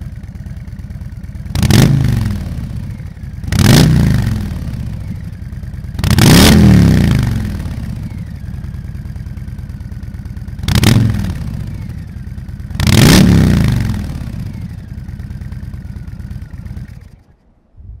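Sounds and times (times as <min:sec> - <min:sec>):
motorcycle engine idling and revving: 0:00.0 - 0:17.4.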